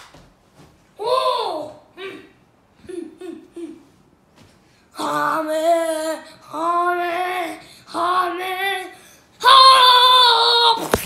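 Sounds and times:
boy chanting shouts: 7.0s - 10.8s.

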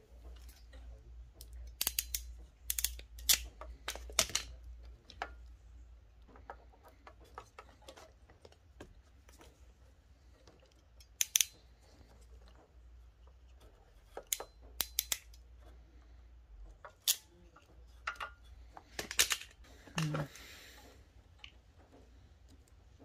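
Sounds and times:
wire stripper snipping: 1.6s - 4.5s.

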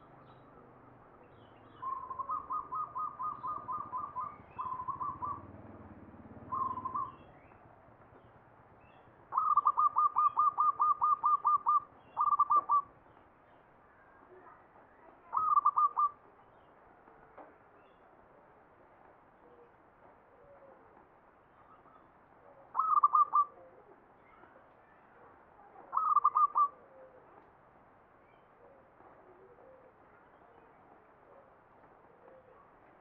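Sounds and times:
zebra dove cooing song: 1.8s - 5.6s, 6.4s - 7.3s, 9.3s - 13.0s, 15.2s - 16.2s, 21.6s - 24.4s, 25.8s - 27.4s, 28.6s - 30.7s, 31.3s - 32.7s.

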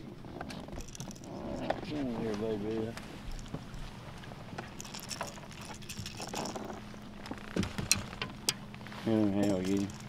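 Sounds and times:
boat motor humming: 0.0s - 10.0s.

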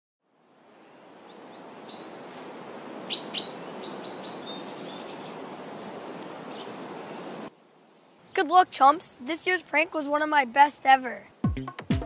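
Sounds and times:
outdoor background haze: 0.2s - 11.5s
small birds chirping and trilling: 0.6s - 7.3s.

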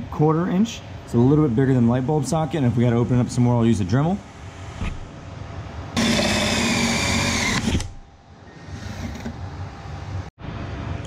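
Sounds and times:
cordless drill whining: 6.0s - 8.0s.

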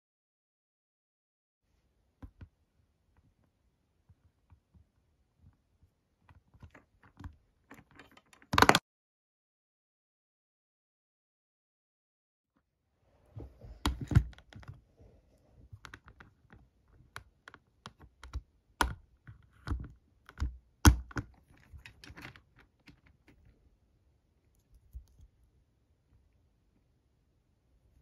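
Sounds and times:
plastic toy figure clicks and taps: 19.6s - 22.3s.

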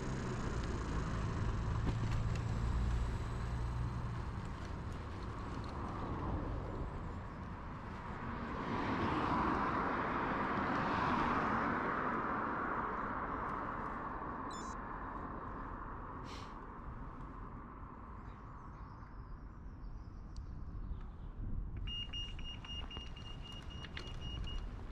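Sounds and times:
road vehicle passing: 0.0s - 18.2s.

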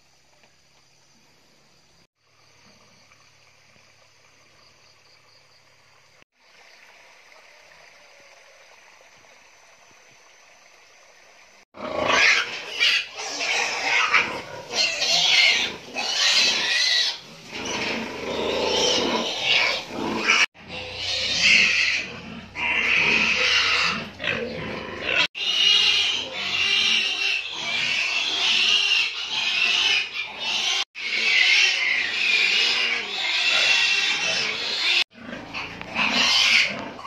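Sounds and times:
pigs grunting: 11.8s - 37.0s
pigs squealing loudly: 11.8s - 37.0s.

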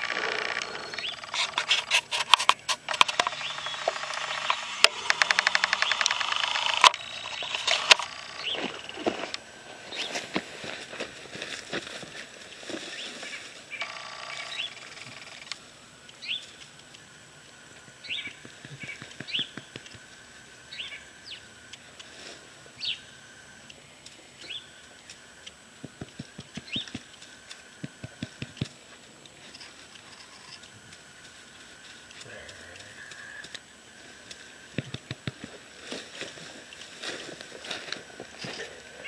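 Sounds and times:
bird chirping sharply: 3.3s - 4.7s
dry leaves crackling and rustling: 7.2s - 13.8s, 35.4s - 39.0s.

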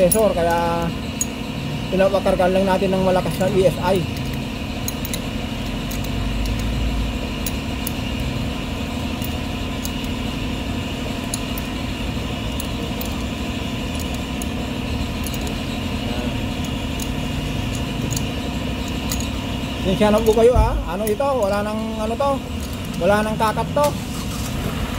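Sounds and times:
wrench clicking on metal: 0.0s - 1.4s, 2.5s - 6.8s, 7.4s - 8.4s, 9.2s - 10.2s, 11.2s - 11.8s, 12.5s - 15.7s, 16.6s - 23.4s
air compressor running: 0.0s - 24.9s.

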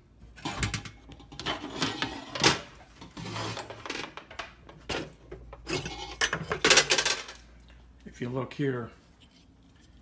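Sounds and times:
metal clatter and scraping in oven: 0.4s - 4.1s.

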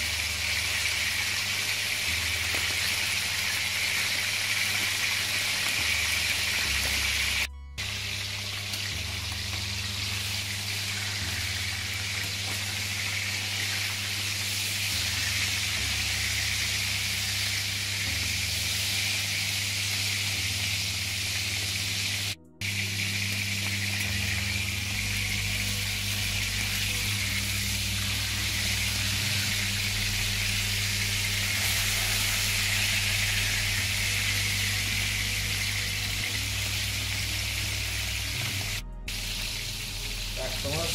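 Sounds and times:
fat sizzling: 0.0s - 40.9s
low hum: 7.1s - 19.4s, 20.1s - 40.5s.

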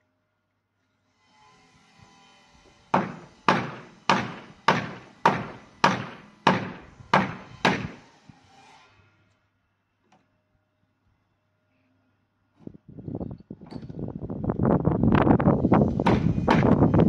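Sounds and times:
heavy blows on wooden door: 15.8s - 17.0s.

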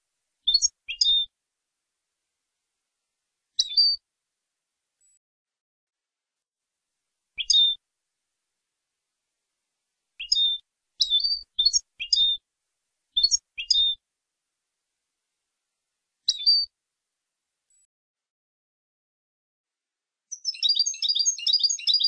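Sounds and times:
goldfinch twittering song: 0.4s - 1.3s, 3.6s - 4.0s, 7.4s - 7.8s, 10.2s - 12.4s, 13.2s - 14.0s, 16.3s - 16.7s, 20.3s - 22.0s.

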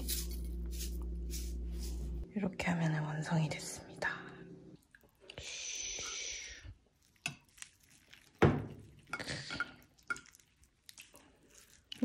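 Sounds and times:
spoon scraping a bowl: 0.0s - 2.0s.

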